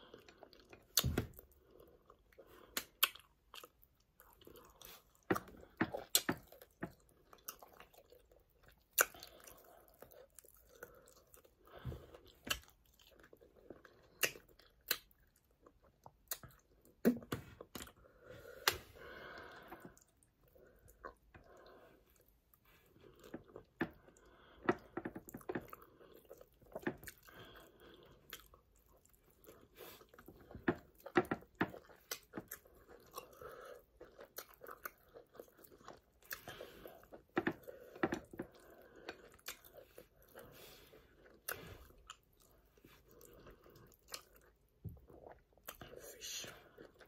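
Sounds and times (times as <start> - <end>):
person chewing and eating: 0.0 - 47.0
mouth clicks and smacks: 2.6 - 3.8, 5.2 - 7.0, 12.4 - 13.0, 14.1 - 15.4, 16.0 - 18.0.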